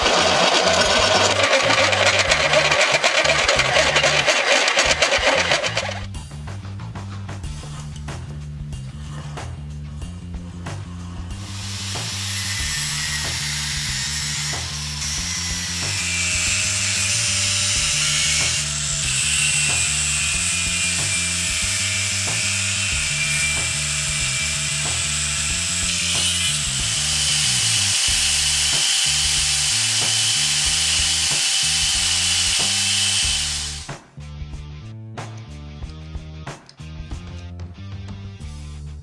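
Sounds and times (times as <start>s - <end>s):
angle grinder cutting steel: 0.0s - 6.1s, 10.9s - 33.9s
background music with bass line: 4.9s - 39.0s.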